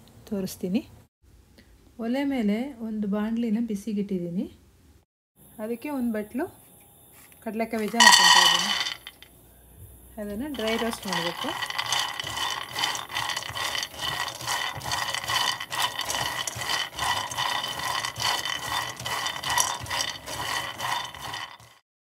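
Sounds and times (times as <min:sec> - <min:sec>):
peanuts rattling in a pan: 0:07.8 - 0:09.2, 0:10.4 - 0:21.8.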